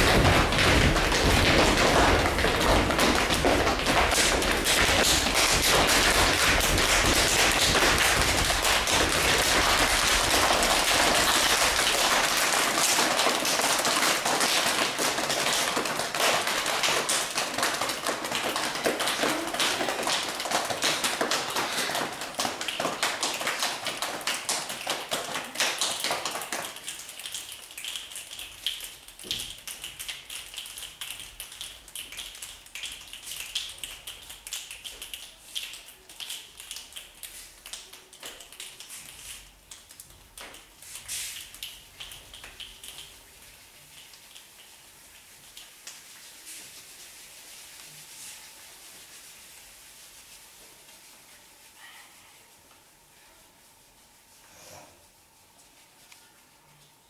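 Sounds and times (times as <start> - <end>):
hands pattering like rain: 0.0 - 51.8.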